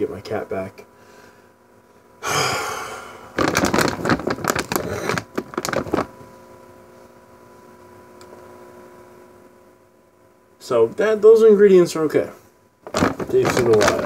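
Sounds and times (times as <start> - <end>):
faint steady hum: 0.0 - 14.0
plastic bag crinkling: 3.3 - 6.2, 12.8 - 14.0.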